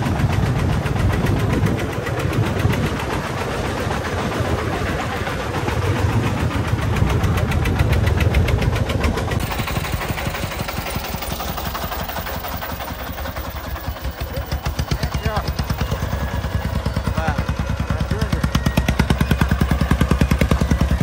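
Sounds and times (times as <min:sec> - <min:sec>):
diesel engine chugging: 0:00.0 - 0:21.0.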